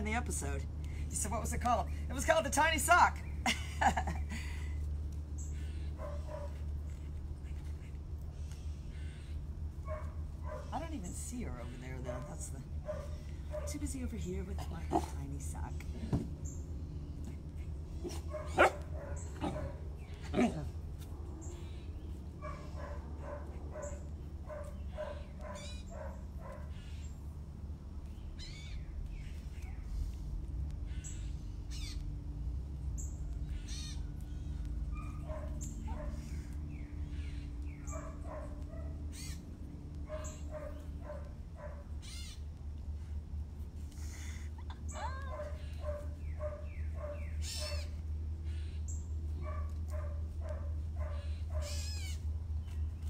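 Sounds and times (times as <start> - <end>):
puppy yipping and whining: 17.6 - 20.6, 22.4 - 27.0, 34.8 - 36.2, 44.6 - 48.0, 49.4 - 52.2.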